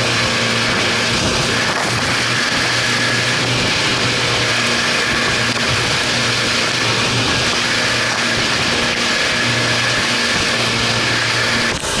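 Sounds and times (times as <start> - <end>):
outboard motors running: 0.0 - 12.0
rush of wind and spray: 0.0 - 12.0.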